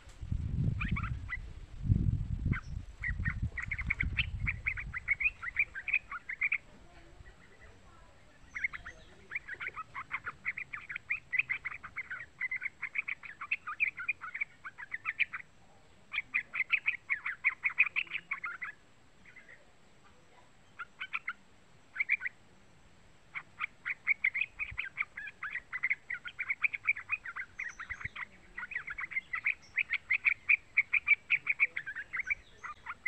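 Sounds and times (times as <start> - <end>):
low rumbling: 0.0 - 5.6
bird singing chattering notes: 0.6 - 1.5, 2.3 - 22.4, 23.3 - 33.0.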